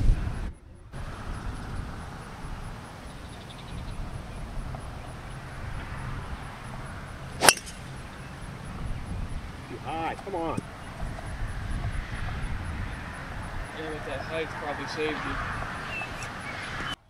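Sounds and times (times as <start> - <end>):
golf ball struck sharp crack: 7.4 - 8.0.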